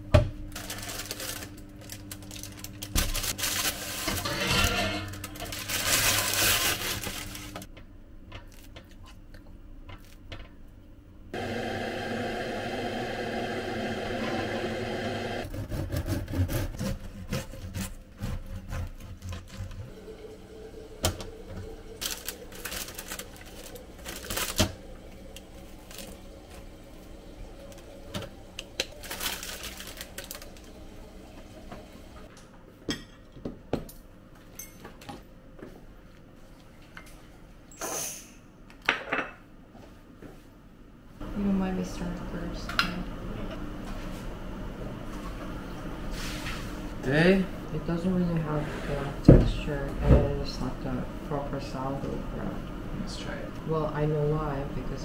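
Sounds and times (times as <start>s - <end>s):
paper rustling: 0.6s - 4.3s, 5.1s - 7.7s, 22.0s - 24.7s, 28.9s - 30.7s
steady hum: 10.9s - 15.7s
bread knife sawing crust: 15.4s - 19.9s.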